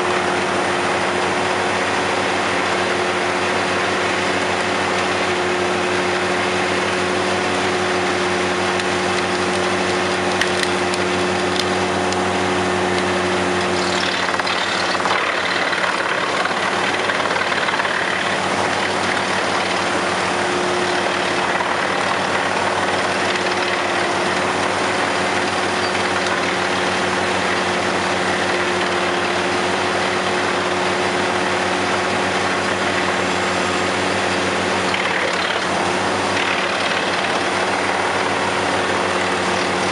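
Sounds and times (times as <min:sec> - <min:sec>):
wood chipper running: 0:00.0 - 0:39.9
branches crackling in chipper: 0:08.1 - 0:31.3.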